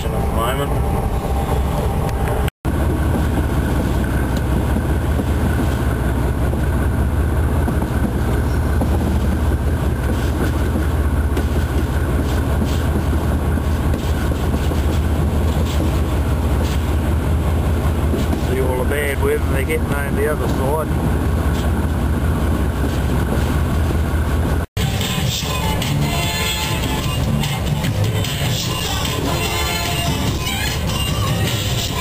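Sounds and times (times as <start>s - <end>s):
diesel engine drone: 0.0s - 32.0s
wheel and rail noise: 0.0s - 32.0s.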